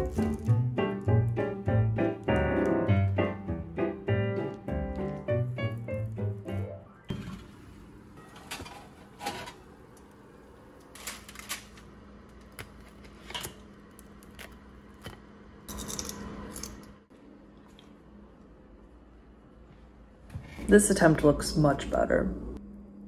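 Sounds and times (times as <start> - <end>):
faint steady hum: 4.8 - 23.0
spatula scraping tray: 8.2 - 9.7.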